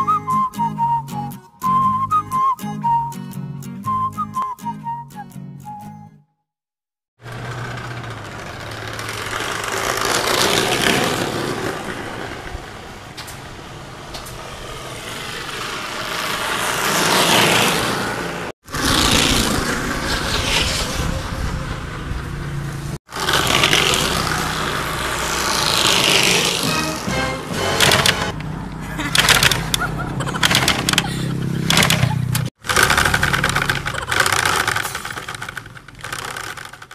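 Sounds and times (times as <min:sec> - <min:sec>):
bicycle muffler noisemaker buzzing: 0:07.2 - 0:12.2, 0:21.2 - 0:28.4.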